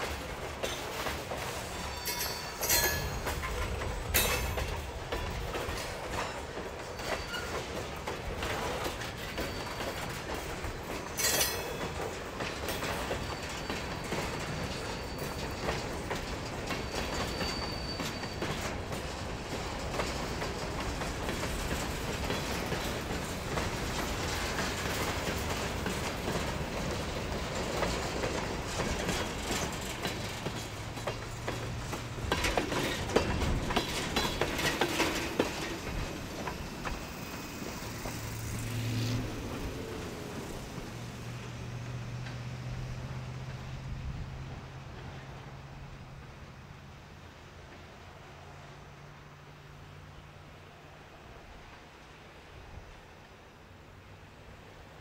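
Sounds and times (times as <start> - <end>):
train cars rumbling clickety-clack: 0.0 - 55.0
faint high squeals: 1.6 - 3.4, 6.2 - 7.8, 13.0 - 16.0, 16.6 - 18.8.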